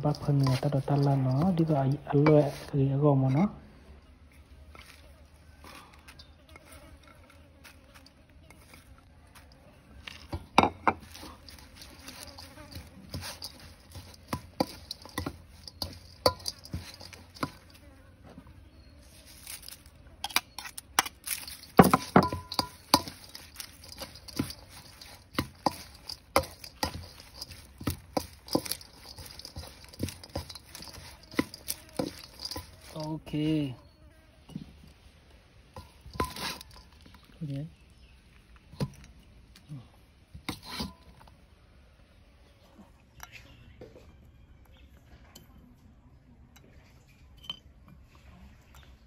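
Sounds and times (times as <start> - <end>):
metal spoon scraping steel bowl: 0.0 - 2.7, 10.1 - 17.9, 18.8 - 34.8, 35.8 - 37.2, 40.5 - 41.2.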